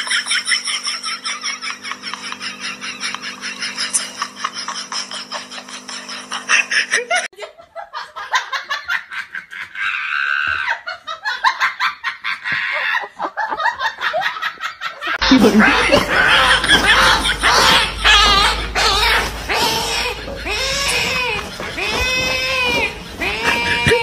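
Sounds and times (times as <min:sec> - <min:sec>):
hearty laughter: 0:00.0 - 0:24.0.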